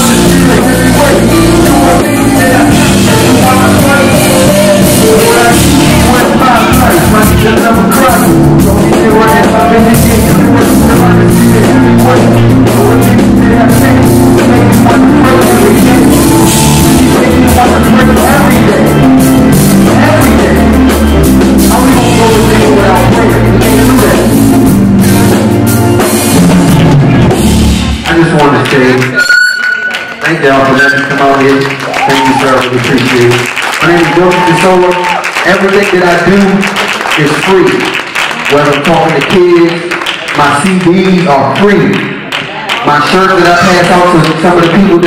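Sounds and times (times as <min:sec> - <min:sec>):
hip-hop backing track: 0:00.0 - 0:28.3.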